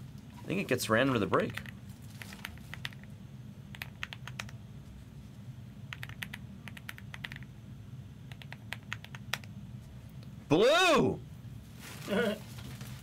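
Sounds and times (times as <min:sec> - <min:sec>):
steady low hum: 0:00.0 - 0:13.0
keyboard typing clicks: 0:03.7 - 0:04.6, 0:05.9 - 0:07.5, 0:08.3 - 0:09.5.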